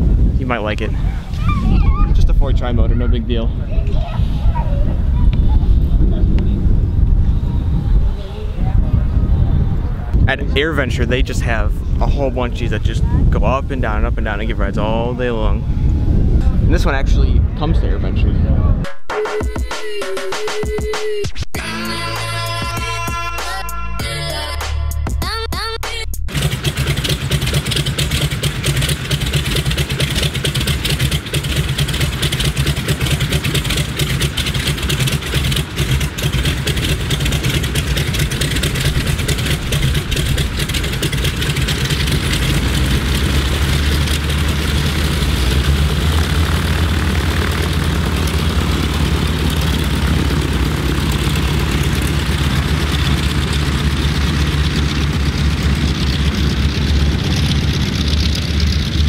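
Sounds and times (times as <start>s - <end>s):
propeller plane engines droning: 0.0s - 18.7s, 26.3s - 59.0s.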